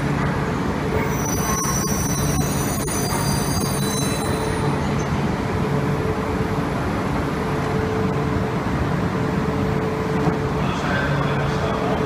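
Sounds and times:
standing train equipment hum: 0.0 - 12.0
train wheel and brake squeal: 0.9 - 5.1.

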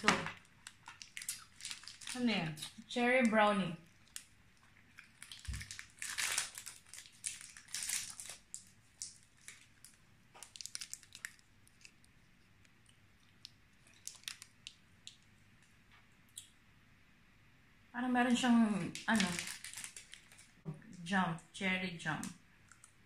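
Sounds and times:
foil wrapper crinkling: 0.0 - 3.3, 3.9 - 12.2, 13.4 - 14.8, 18.9 - 20.6.

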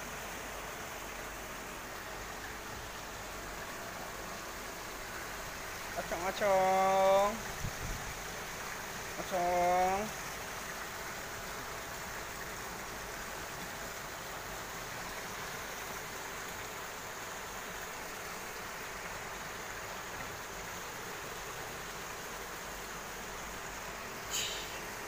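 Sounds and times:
running water rushing: 0.0 - 25.0.

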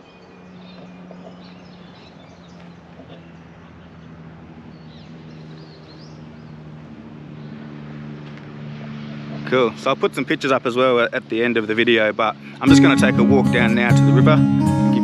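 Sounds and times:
bird chirps: 0.0 - 6.7
low engine hum: 0.0 - 15.0.

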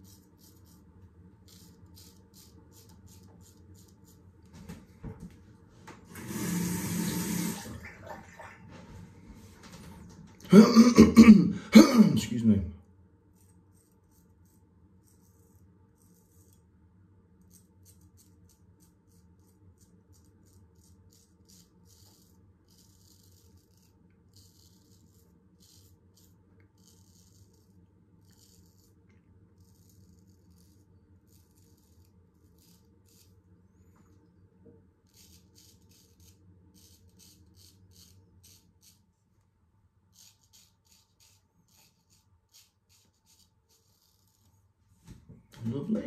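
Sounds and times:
razor scraping stubble: 0.0 - 4.7, 13.3 - 16.6, 17.4 - 33.5, 35.0 - 39.1, 40.1 - 44.6.

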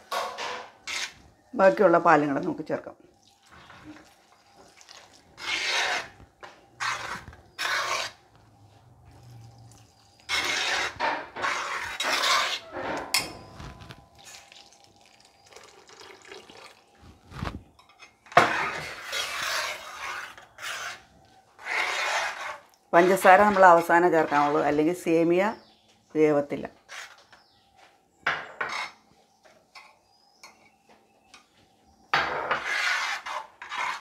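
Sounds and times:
metal spoon scraping a pot: 0.1 - 1.2, 5.1 - 6.2, 6.8 - 8.2, 9.3 - 14.7, 17.8 - 24.8, 32.2 - 34.0
milk pouring: 3.1 - 5.6, 14.1 - 17.2.

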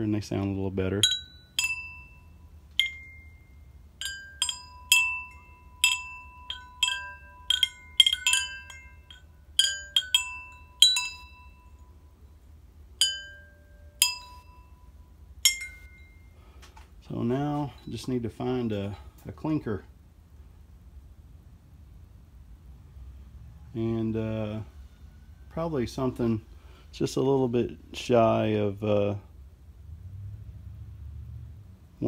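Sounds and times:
metal tube chimes ringing: 0.8 - 16.4.

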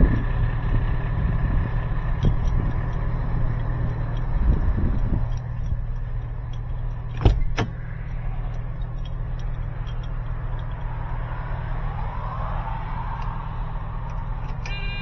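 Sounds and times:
diesel truck engine idling: 0.0 - 15.0
keys jangling: 2.1 - 11.3
truck door latch clicking: 5.2 - 10.8.

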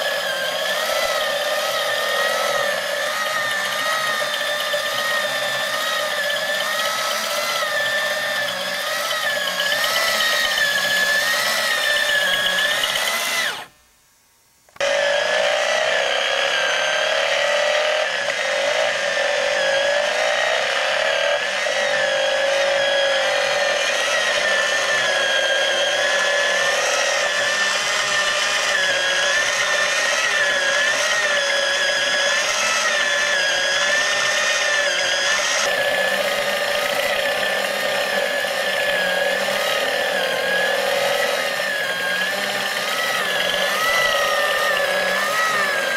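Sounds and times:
small electric motor whining: 0.0 - 13.8, 14.8 - 45.9.

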